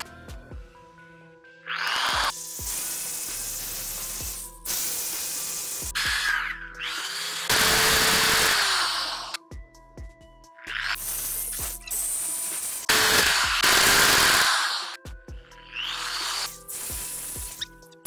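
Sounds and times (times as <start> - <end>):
background music: 0.0 - 18.0
drill press cutting metal: 6.0 - 9.4, 12.9 - 14.9.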